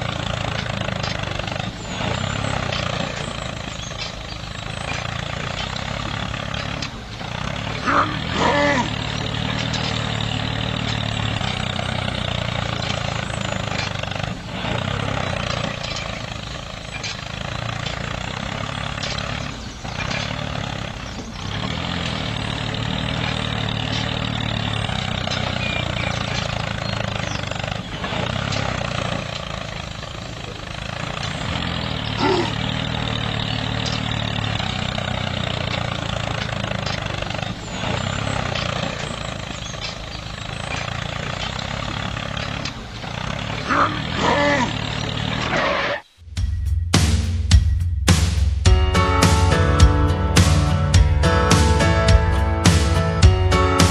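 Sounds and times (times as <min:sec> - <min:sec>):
tractor engine running: 0:00.0 - 0:53.9.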